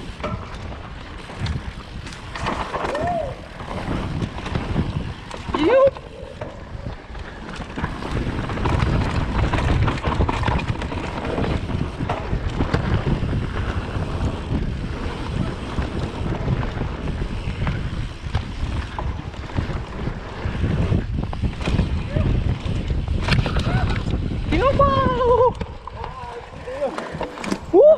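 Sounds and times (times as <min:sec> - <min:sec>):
bike rattling and knocking: 0:00.0 - 0:27.9
bike tyres rumbling over dirt: 0:00.0 - 0:27.9
wind buffeting microphone: 0:00.0 - 0:27.9.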